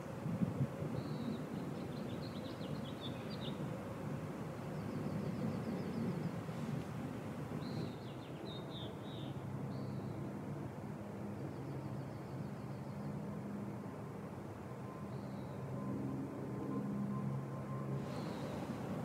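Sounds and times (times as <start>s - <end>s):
low outdoor background rumble: 0.0s - 19.0s
songbird chirping and trilling: 1.0s - 3.6s, 7.6s - 10.1s.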